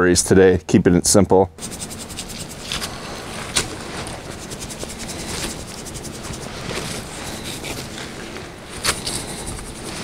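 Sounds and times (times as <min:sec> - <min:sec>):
shaker rattling: 0:01.6 - 0:08.0, 0:08.9 - 0:10.0.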